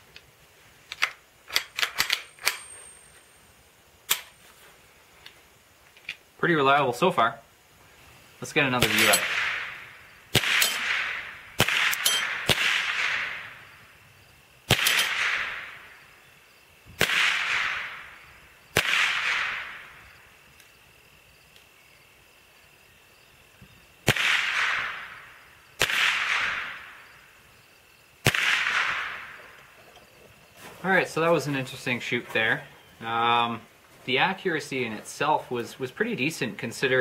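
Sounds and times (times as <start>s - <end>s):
rifle shots: 8.8s - 13.7s, 14.7s - 16.0s, 17.0s - 19.9s, 24.0s - 27.1s, 28.2s - 29.4s.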